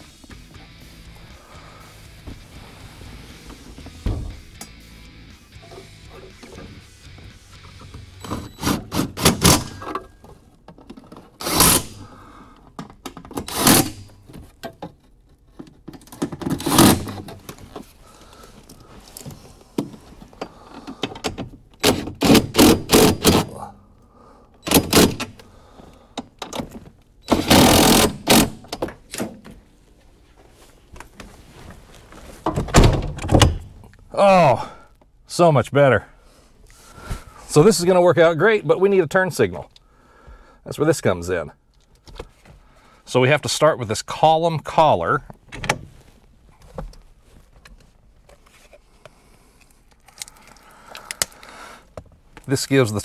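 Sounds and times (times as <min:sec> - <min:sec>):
metal car parts and tools clattering: 0:05.5 - 0:06.9, 0:07.6 - 0:17.9.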